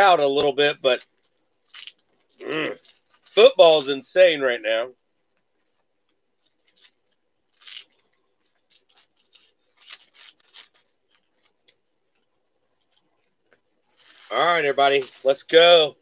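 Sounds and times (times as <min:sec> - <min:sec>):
wrapper tearing and crinkling: 0:00.8 - 0:03.9, 0:06.4 - 0:15.6.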